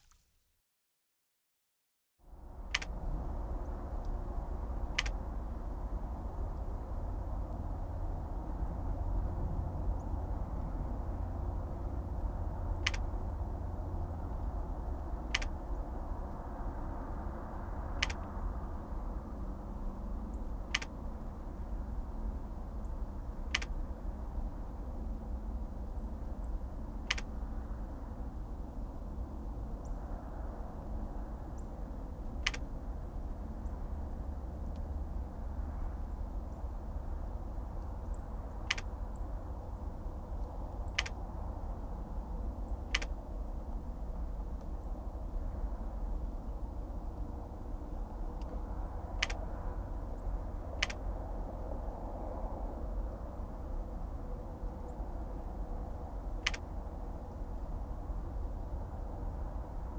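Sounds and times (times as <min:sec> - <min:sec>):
low room hum: 0:02.2 - 0:59.9
low rumbling background noise: 0:02.2 - 0:59.9
sharp clicks: 0:02.7 - 0:03.0, 0:04.9 - 0:05.2, 0:12.8 - 0:13.1, 0:15.3 - 0:15.6, 0:18.0 - 0:18.3, 0:20.7 - 0:21.0, 0:23.5 - 0:23.8, 0:27.0 - 0:27.4, 0:32.4 - 0:32.7, 0:37.8 - 0:39.3, 0:40.4 - 0:41.2, 0:42.8 - 0:43.3, 0:49.2 - 0:49.4, 0:50.8 - 0:51.0, 0:56.4 - 0:56.9.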